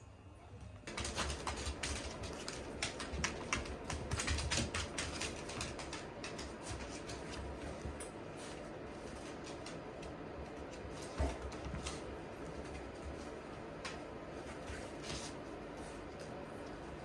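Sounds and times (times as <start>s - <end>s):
dog claws clicking on hard floor: 0.9s - 8.2s.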